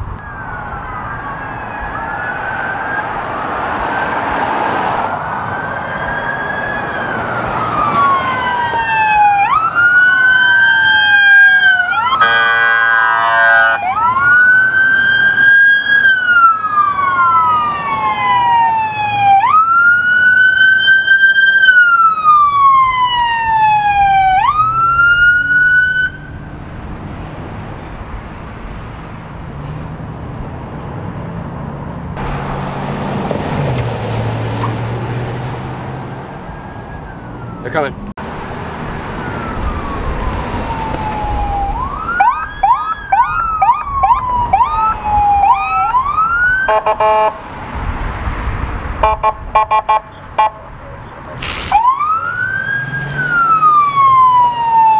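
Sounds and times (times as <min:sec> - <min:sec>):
police sirens wailing: 0:00.0 - 0:30.8, 0:31.4 - 0:54.9
traffic and engine noise: 0:00.0 - 0:54.9
horn blast: 0:12.1 - 0:13.8, 0:46.7 - 0:47.4, 0:49.0 - 0:50.6.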